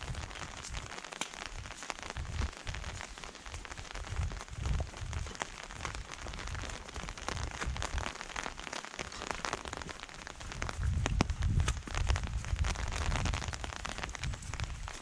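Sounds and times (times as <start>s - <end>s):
footsteps on wet gravel: 0.0s - 15.0s.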